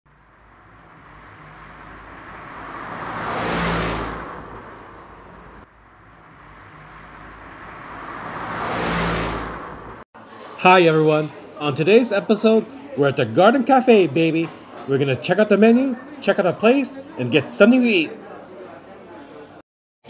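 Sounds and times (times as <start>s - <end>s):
car passing by: 0.1s - 10.0s.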